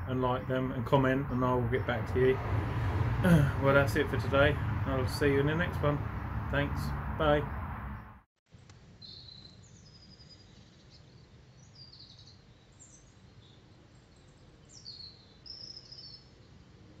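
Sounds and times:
songbirds chirping and trilling: 0.0s - 3.2s, 9.0s - 17.0s
outdoor background noise: 0.0s - 17.0s.

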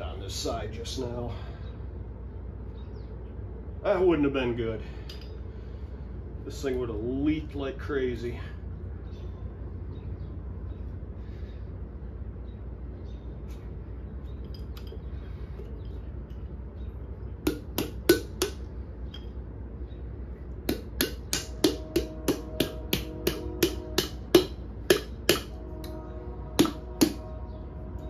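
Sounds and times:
palm slapping metal engine head: 17.4s - 19.4s, 20.6s - 26.0s, 26.6s - 27.4s.

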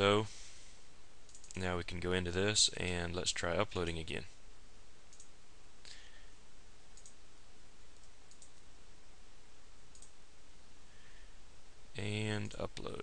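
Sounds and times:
background hiss: 0.0s - 13.0s
computer mouse clicks: 1.3s - 1.6s, 5.1s - 5.3s, 6.9s - 7.2s, 8.0s - 8.6s, 9.9s - 10.2s.

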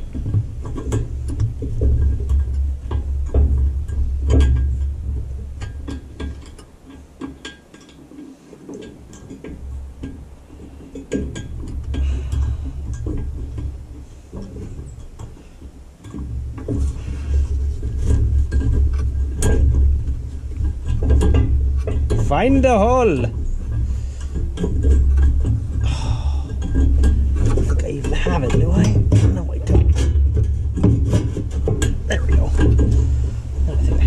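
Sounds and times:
low rumble: 25.4s - 34.0s.

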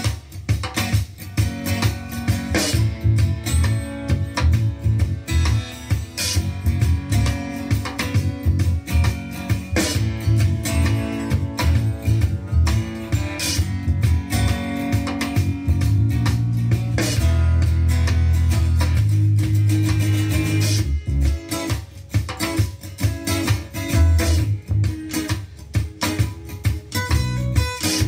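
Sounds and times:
strummed acoustic guitar music: 0.0s - 28.0s
bass line: 2.4s - 21.5s, 23.6s - 25.1s, 27.1s - 28.0s.

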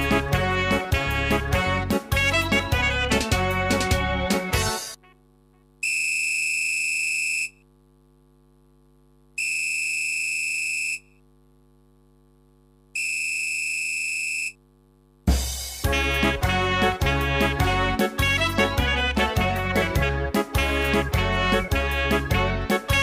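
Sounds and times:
electronic buzzer tones: 4.9s - 7.7s, 9.4s - 11.2s, 12.9s - 14.6s
faint low hum: 5.0s - 15.2s.

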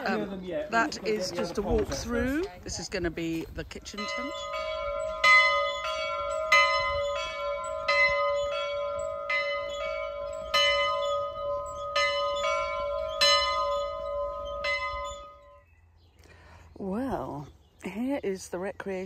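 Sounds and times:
church bells ringing: 3.8s - 15.7s.

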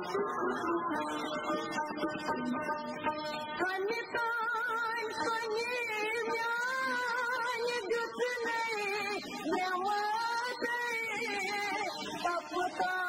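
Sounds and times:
woman singing: 3.6s - 13.0s.

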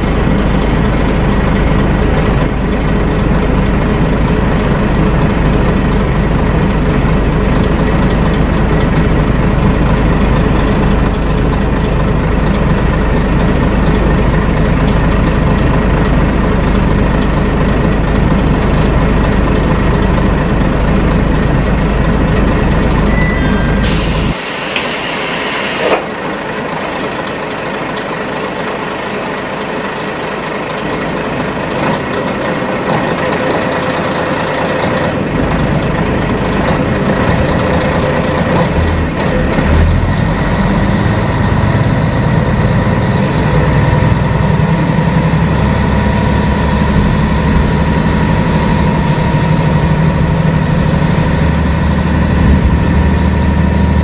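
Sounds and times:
diesel railcar engine: 0.0s - 54.0s
air hiss: 23.8s - 26.2s.

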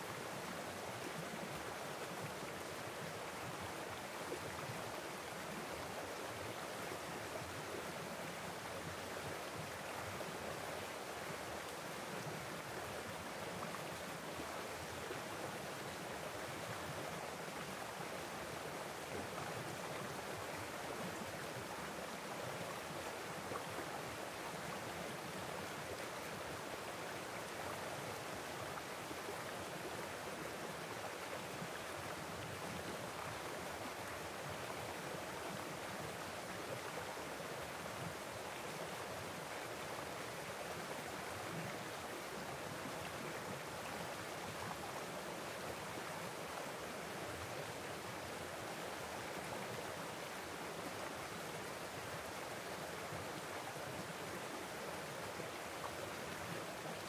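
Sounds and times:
stream flowing over cascade: 0.0s - 57.0s.

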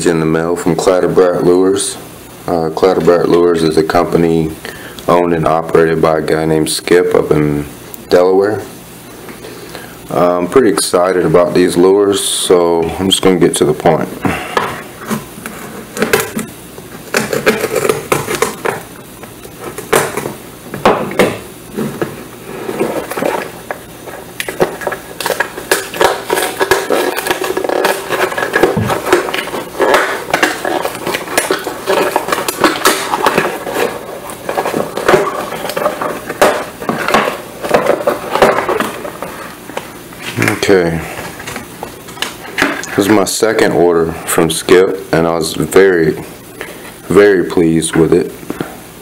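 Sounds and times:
cardboard and paper ripping: 24.5s - 39.5s.

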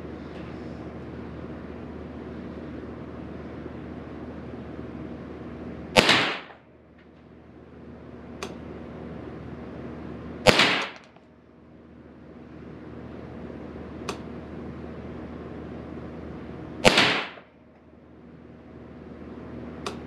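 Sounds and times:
rifle shots with echo: 6.0s - 6.6s, 10.5s - 11.0s, 16.8s - 17.5s.

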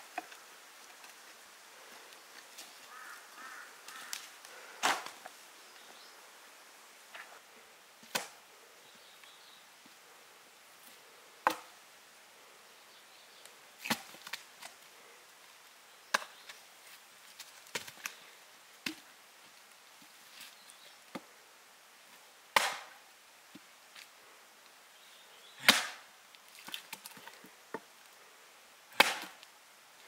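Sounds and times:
sharp chopping strikes: 4.8s - 5.2s, 22.6s - 23.0s, 25.6s - 26.0s, 29.0s - 29.4s.

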